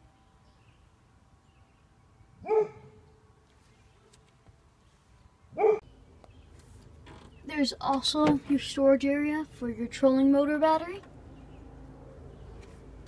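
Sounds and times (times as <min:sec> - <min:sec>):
dog barking: 0:02.4 - 0:03.0, 0:05.6 - 0:05.8.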